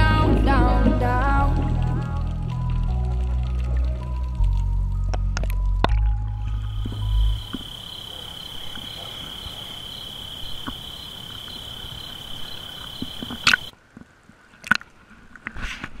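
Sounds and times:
water slapping against camera: 0:05.4 - 0:16.0
sharp splash: 0:12.4 - 0:13.7.

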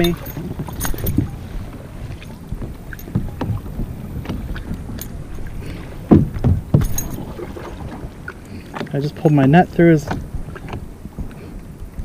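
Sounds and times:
thump on plastic kayak: 0:06.1 - 0:07.0.

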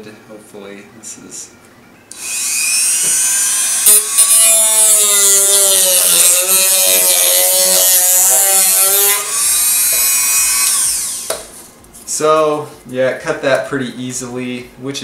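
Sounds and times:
rotary tool cutting cardboard: 0:02.2 - 0:11.4.

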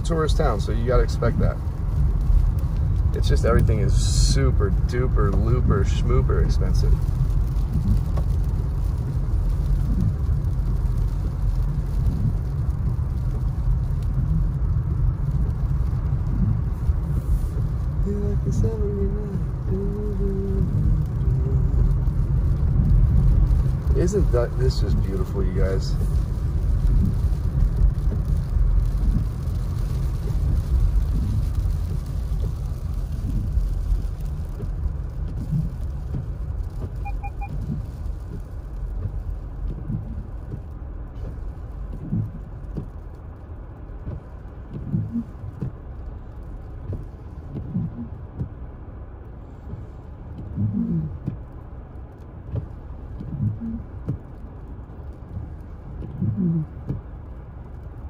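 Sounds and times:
car road and engine rumble: 0:00.0 - 0:58.0
short double beep: 0:37.0 - 0:37.6.

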